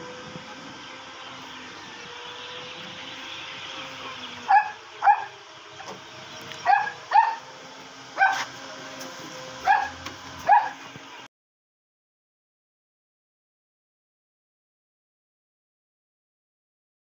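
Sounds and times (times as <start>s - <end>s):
steady hum: 0.0s - 11.3s
dog barking: 4.5s - 5.3s, 6.6s - 7.5s, 8.2s - 8.5s, 9.6s - 10.8s.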